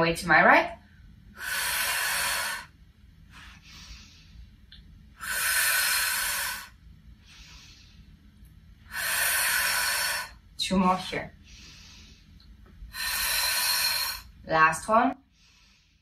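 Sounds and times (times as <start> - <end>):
woman breathing out forcefully: 1.4 - 2.8, 5.2 - 8.1, 8.9 - 10.4, 11.4 - 14.4.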